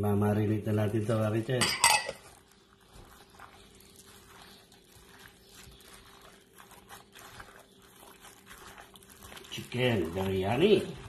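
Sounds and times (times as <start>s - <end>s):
plastic glove crinkling: 2.2s - 11.0s
raw chicken squelching in marinade: 2.2s - 11.0s.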